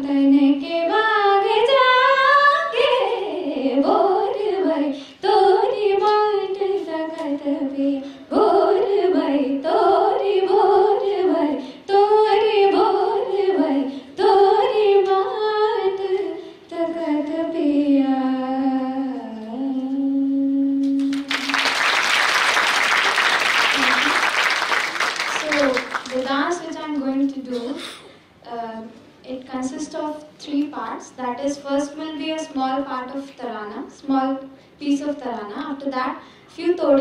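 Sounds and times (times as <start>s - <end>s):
woman singing unaccompanied: 0.0s - 21.2s
singer breathing: 36.2s - 36.6s.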